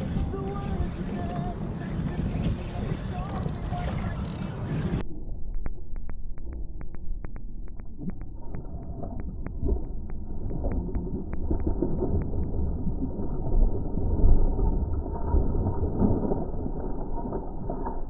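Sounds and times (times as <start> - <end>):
low wind rumble on microphone: 0.0 - 5.0
fishing reel clicking: 3.1 - 5.0.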